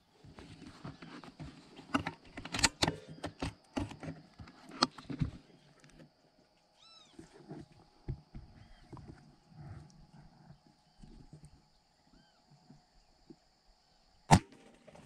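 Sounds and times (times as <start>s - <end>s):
rifle handling clicks and knocks: 0.5s - 6.1s.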